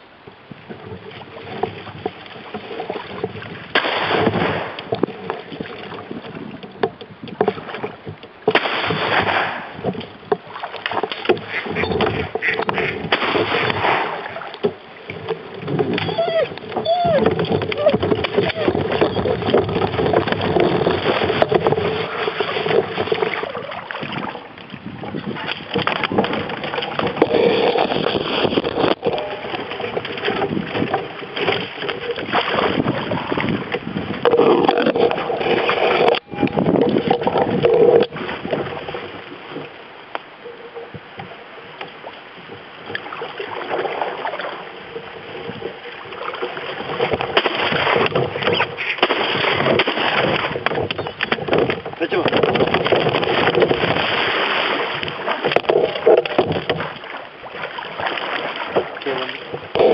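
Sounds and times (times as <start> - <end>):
paddle strokes splashing: 0.0 - 59.9
water gurgling against hull: 0.0 - 59.9.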